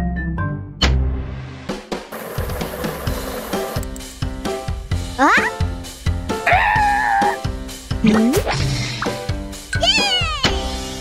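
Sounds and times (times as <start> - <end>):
cartoon character whimpering: 5.2 - 5.6, 6.5 - 7.4.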